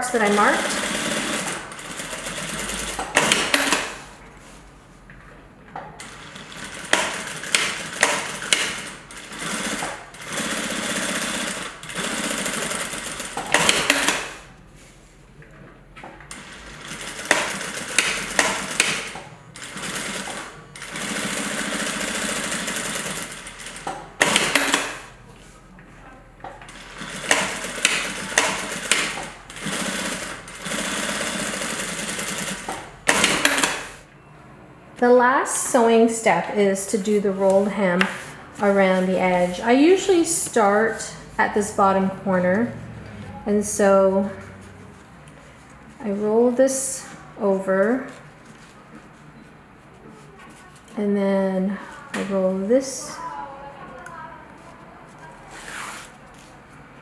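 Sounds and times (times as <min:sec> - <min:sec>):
sewing machine stitching: 0:00.3 - 0:04.1, 0:06.0 - 0:14.4, 0:16.3 - 0:25.1, 0:26.7 - 0:34.0.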